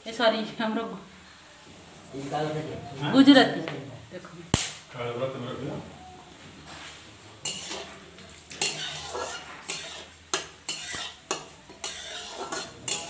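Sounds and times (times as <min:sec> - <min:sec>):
faint sizzling oil: 0:07.4 - 0:13.0
metal spatula scraping a wok: 0:07.4 - 0:13.0.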